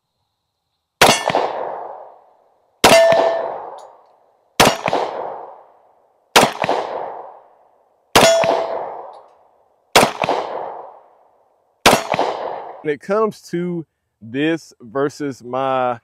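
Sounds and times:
pistol shots with echo: 1.0s - 2.2s, 2.8s - 4.0s, 4.6s - 7.5s, 8.1s - 9.3s, 9.9s - 11.1s, 11.8s - 12.8s.

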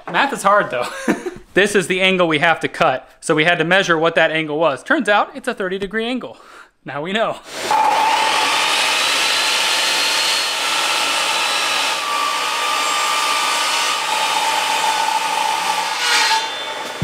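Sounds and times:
table saw cutting wood: 7.5s - 17.0s.

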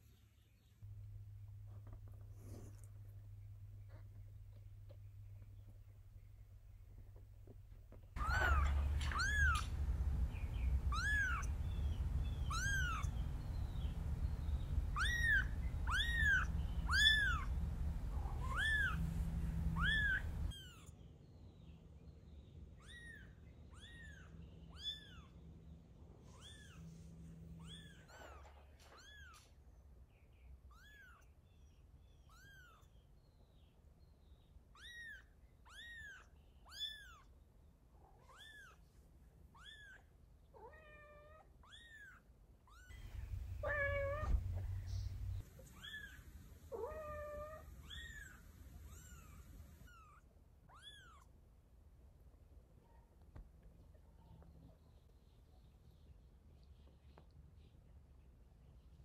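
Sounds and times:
low hum: 0.8s - 20.5s, 42.9s - 45.7s
kitten mewing: 10.9s - 11.6s, 12.4s - 13.2s, 18.2s - 19.1s, 19.7s - 20.8s, 40.6s - 51.3s.

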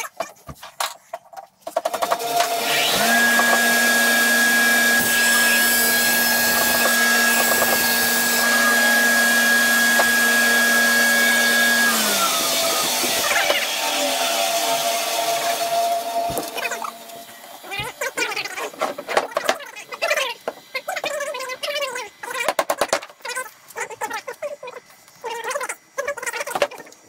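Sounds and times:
bandsaw cutting wood: 1.9s - 20.2s.

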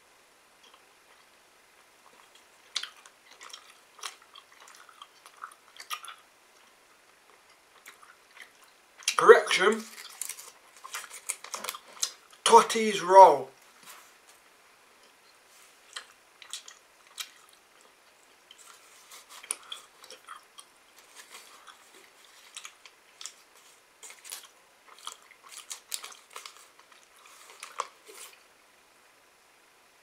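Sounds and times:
wax paper wrapper crinkling: 9.7s - 12.5s, 21.0s - 28.4s.

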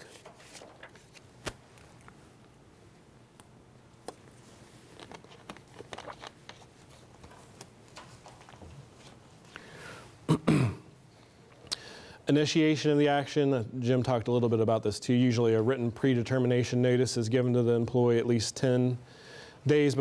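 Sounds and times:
soft rustles: 0.0s - 2.2s, 4.2s - 9.5s
low steady hum: 0.0s - 20.0s.

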